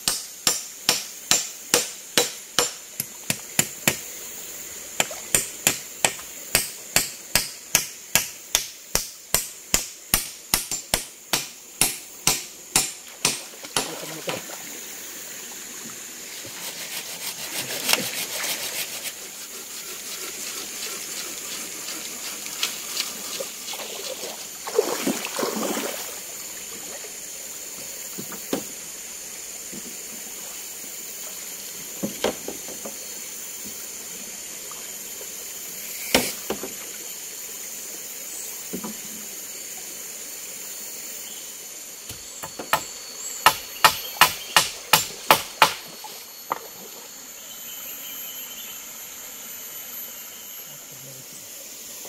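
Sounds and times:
wood being struck: 0.0s - 4.0s, 5.0s - 14.0s, 42.1s - 45.9s
flowing water hiss: 0.0s - 52.0s.

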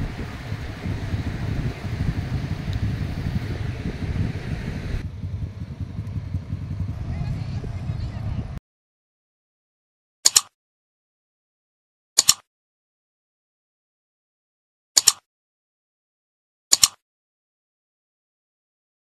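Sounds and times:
mouse double clicks: 10.2s - 10.5s, 12.2s - 12.4s, 15.0s - 15.2s, 16.7s - 17.0s.

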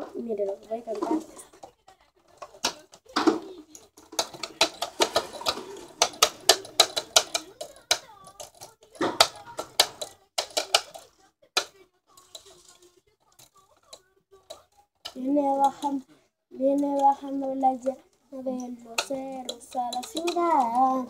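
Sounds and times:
plastic keyboard keys clacking: 0.6s - 16.0s, 18.9s - 21.0s.

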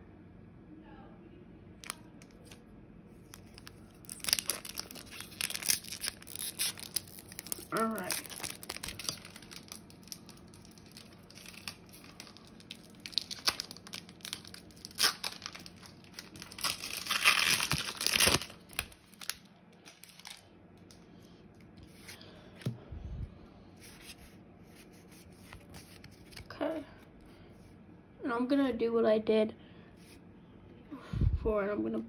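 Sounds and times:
foil wrapper crinkling and tearing: 1.8s - 2.6s, 3.2s - 20.9s.

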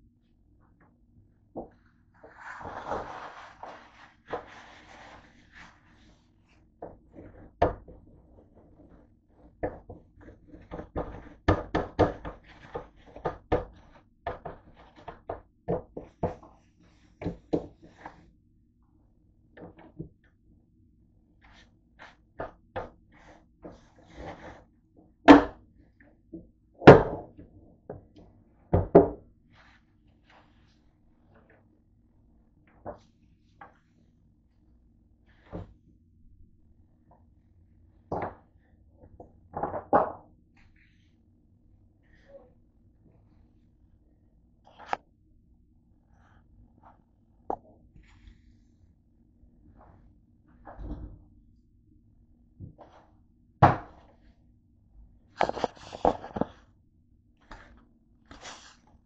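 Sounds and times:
paper towel rubbing on grill: 2.2s - 6.2s.

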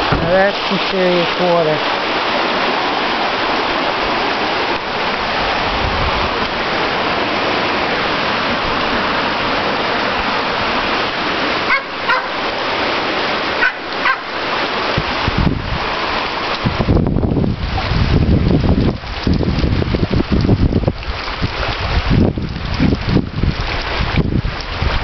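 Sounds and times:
floodwater rushing: 0.0s - 25.0s
rain hissing: 0.0s - 25.0s
dog barking: 11.6s - 12.4s, 13.6s - 14.3s.

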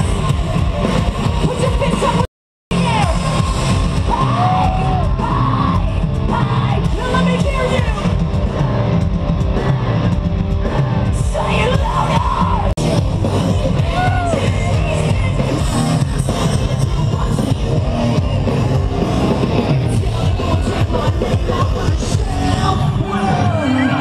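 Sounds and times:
crowd yelling along: 0.0s - 24.0s
rock band playing loud: 0.0s - 24.0s
person singing: 10.6s - 24.0s.

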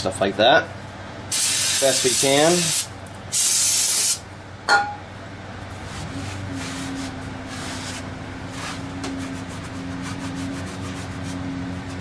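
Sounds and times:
rag scrubbing a brake rotor: 6.1s - 12.0s.

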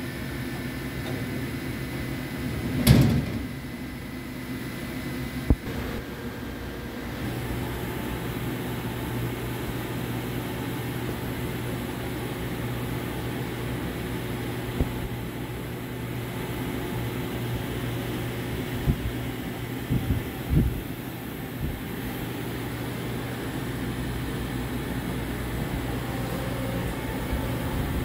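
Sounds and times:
low machinery hum: 0.0s - 28.0s.

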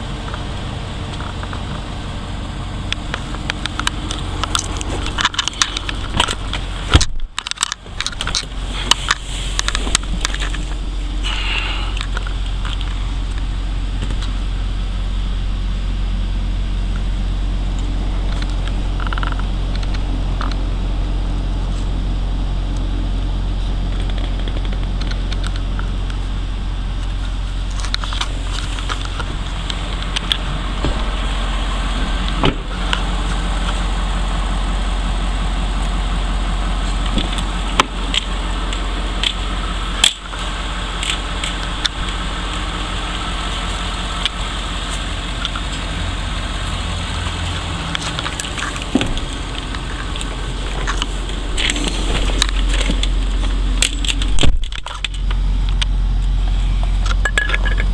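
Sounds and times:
diesel engine idling: 0.0s - 57.9s.

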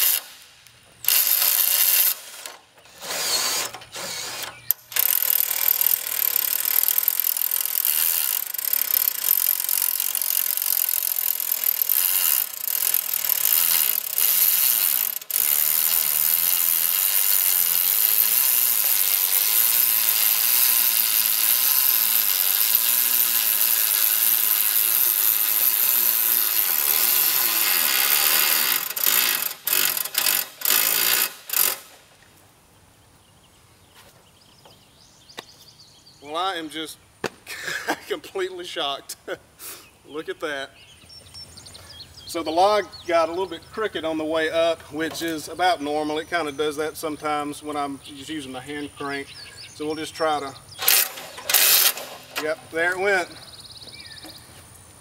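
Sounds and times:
electric drill running under load: 0.0s - 0.4s, 1.1s - 31.9s, 50.8s - 52.4s.

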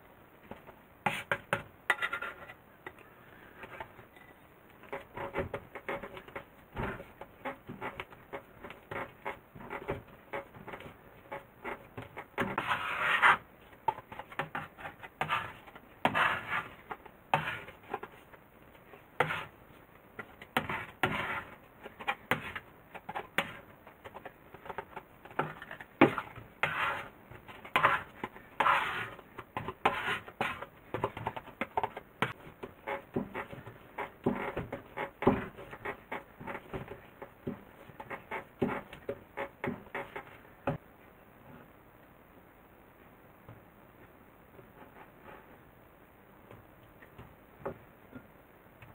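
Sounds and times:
hands kneading dough: 0.4s - 40.8s
dough scraper scraping board: 1.0s - 2.5s, 4.9s - 13.5s, 14.1s - 18.1s, 19.2s - 19.6s, 20.6s - 40.8s.

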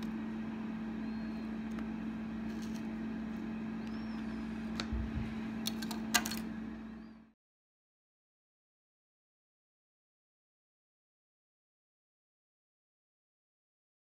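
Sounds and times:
low kitchen hum: 0.0s - 7.4s.

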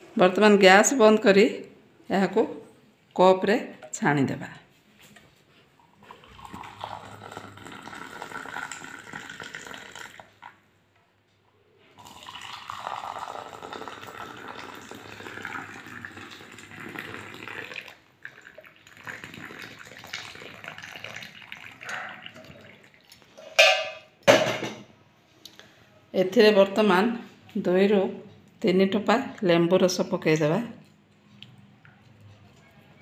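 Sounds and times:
liquid pouring into cups: 5.9s - 10.6s, 12.0s - 23.6s.

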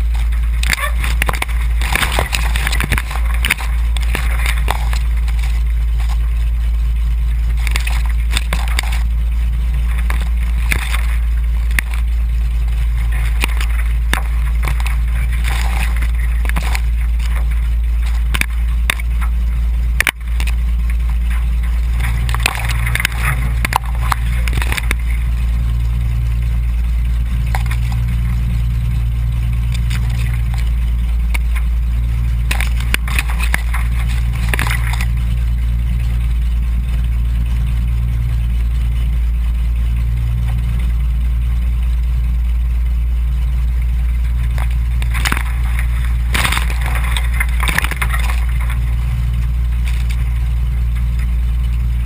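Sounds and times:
plane engine droning: 0.0s - 52.0s
reeds brushing and scraping: 12.7s - 19.3s, 44.5s - 50.2s.

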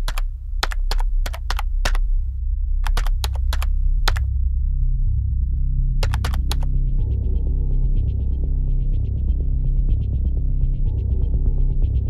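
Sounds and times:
keyboard key clicks: 0.0s - 2.1s, 2.8s - 4.2s, 6.0s - 6.7s
low drone: 3.7s - 12.0s.

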